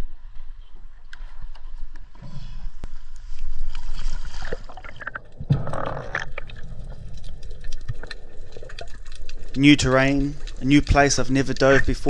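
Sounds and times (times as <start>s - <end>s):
small crackles: 0.2s - 12.0s
muffled underwater rushing and bubbling: 3.0s - 12.0s.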